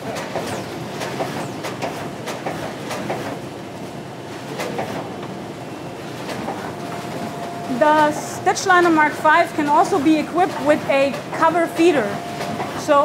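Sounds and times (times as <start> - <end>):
mechanical clatter: 0.0 - 3.5.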